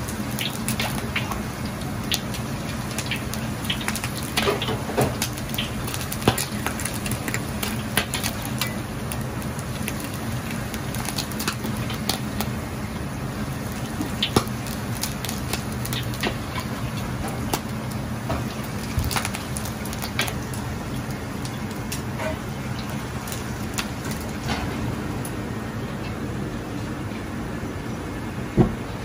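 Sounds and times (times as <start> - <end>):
hot oil sizzling and popping: 0.0 - 25.4.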